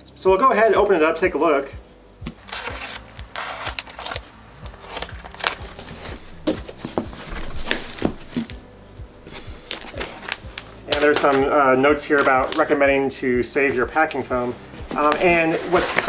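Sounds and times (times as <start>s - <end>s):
cardboard rustling and scraping: 2.3s - 8.6s, 9.2s - 11.4s, 13.5s - 16.0s
knife slitting packing tape: 2.4s - 6.3s.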